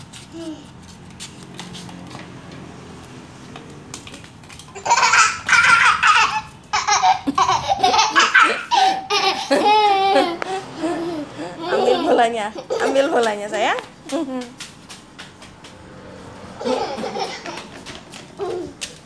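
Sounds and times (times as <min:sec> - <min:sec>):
young child laughing loudly: 0:04.8 - 0:13.0, 0:16.6 - 0:19.0.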